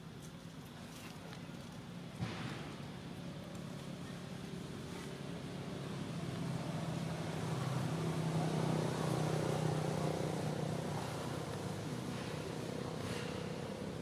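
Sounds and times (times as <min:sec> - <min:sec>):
vehicle engine hum: 0:00.0 - 0:14.0.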